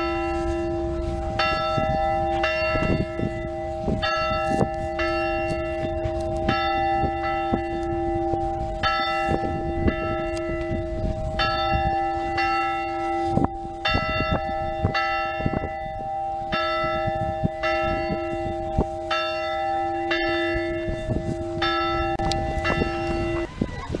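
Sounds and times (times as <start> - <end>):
church bell ringing: 0.0 - 23.6.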